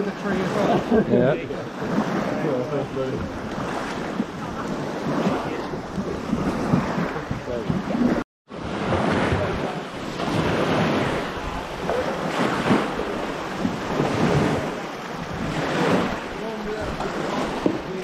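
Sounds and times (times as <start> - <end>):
wind buffeting microphone: 0.0 - 18.0
faint voices: 15.6 - 18.0.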